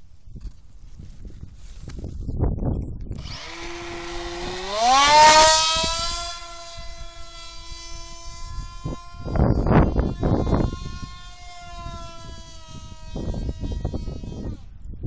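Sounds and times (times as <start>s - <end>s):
rc model motor whining: 3.1s - 15.0s.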